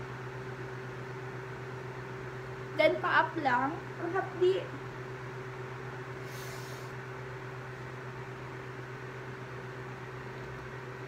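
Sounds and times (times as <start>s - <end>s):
electric fan motor hum: 0.0s - 11.0s
brief hiss: 6.2s - 7.0s.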